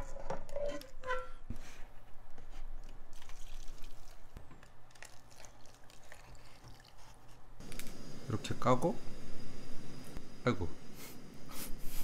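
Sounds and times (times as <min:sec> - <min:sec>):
broth pouring and splashing: 0:03.1 - 0:07.2.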